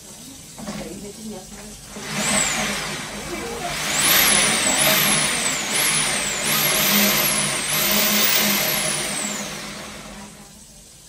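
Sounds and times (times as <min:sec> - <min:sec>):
pressure jetter hiss and whine: 0:01.8 - 0:10.6.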